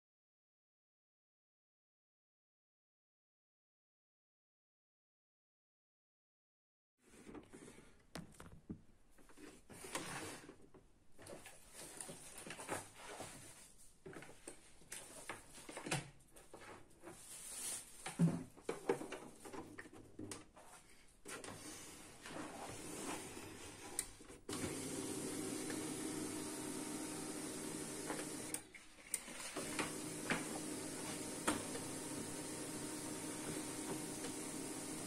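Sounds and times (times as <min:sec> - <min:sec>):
printer mechanism humming: 0:24.5 - 0:28.7, 0:29.6 - 0:35.0.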